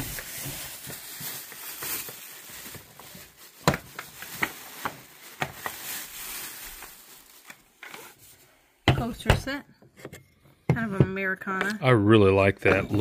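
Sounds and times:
plastic bag rustling: 0.0 - 8.6.

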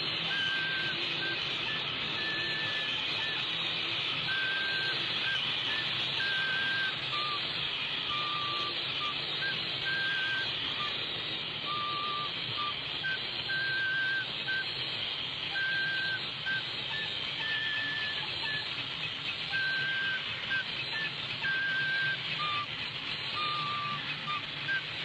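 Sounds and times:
flute melody: 19.5 - 22.7.

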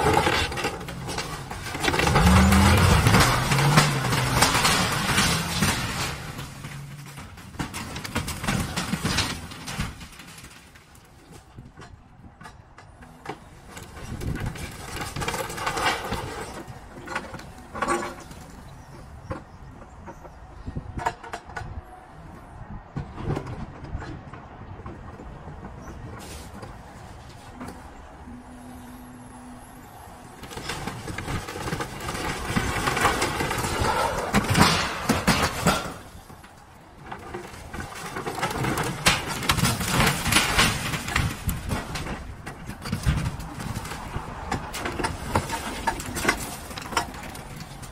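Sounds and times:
loud metal crashes: 0.0 - 10.7, 30.4 - 36.3
boards and sheet metal clattering: 0.0 - 12.6, 30.4 - 47.9
excavator running: 0.0 - 47.9.

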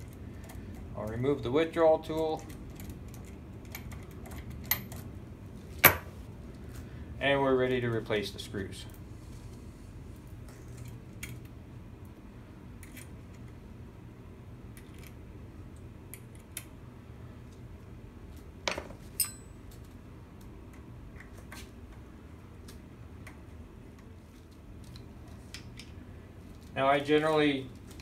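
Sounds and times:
ringing metallic clinks: 19.2 - 19.6.

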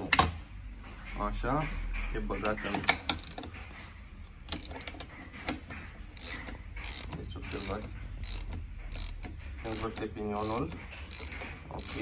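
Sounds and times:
ratchet pawl clicking: 3.1 - 3.4, 6.1 - 12.0
gears turning inside case: 4.5 - 12.0.

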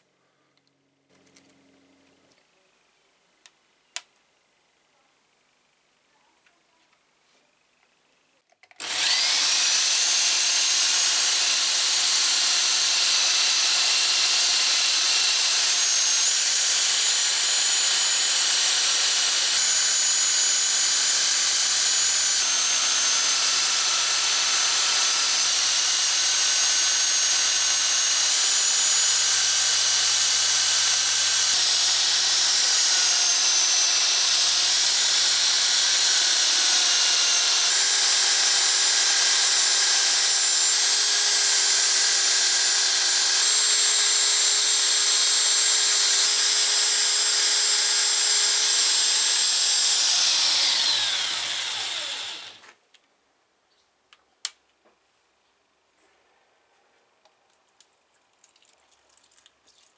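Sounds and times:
grinder polishing wheel whine: 8.8 - 38.4, 49.6 - 52.6.

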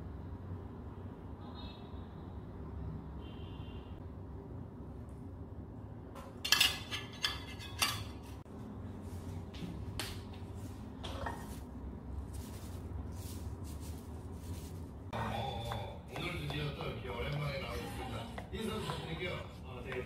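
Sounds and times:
metal spatula clinking on dishes: 6.4 - 8.3.

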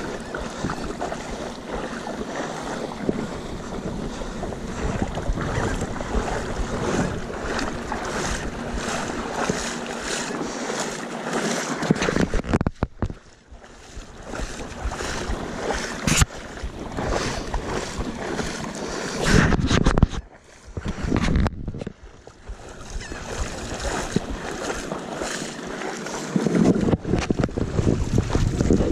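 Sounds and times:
wind buffeting microphone: 0.0 - 10.9, 11.8 - 28.9
legs wading through water: 0.0 - 28.9
brush against camera: 19.2 - 20.2.

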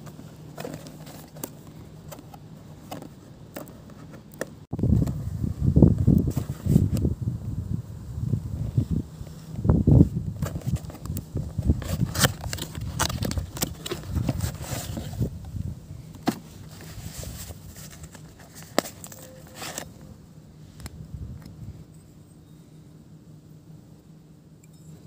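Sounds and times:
cardboard and case rustling: 0.0 - 5.2, 10.4 - 15.3, 16.1 - 20.1.

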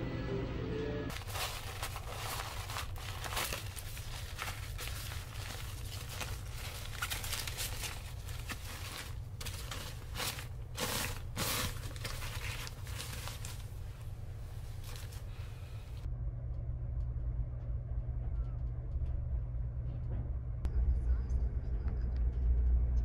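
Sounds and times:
low hum: 0.0 - 23.0
plastic bag crinkling: 1.1 - 15.6.

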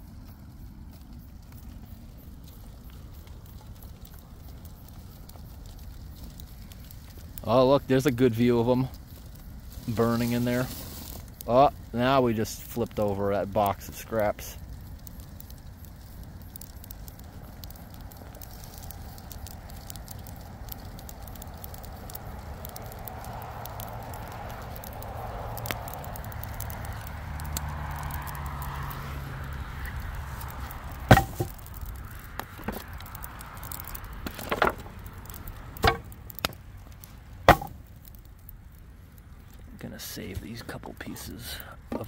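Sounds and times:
fire crackling and popping: 0.0 - 42.0
wooden boards knocking together: 31.1 - 31.6, 34.3 - 34.9, 35.8 - 36.1, 37.5 - 37.8.

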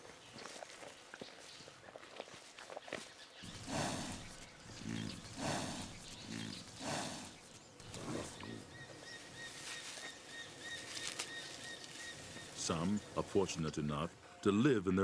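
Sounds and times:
buffalo grunting and breathing: 3.4 - 9.4.

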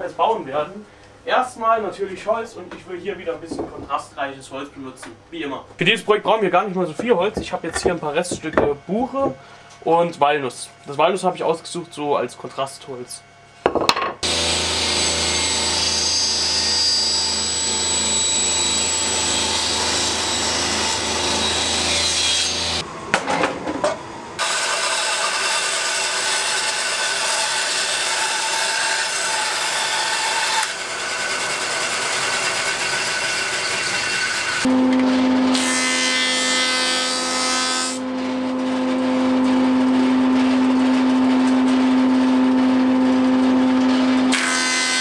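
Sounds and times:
wood knocking: 3.4 - 4.0, 7.0 - 9.4, 13.7 - 14.2
band saw cutting wood: 14.2 - 22.8, 24.4 - 39.0, 43.7 - 45.0
power saw humming: 14.2 - 23.0.

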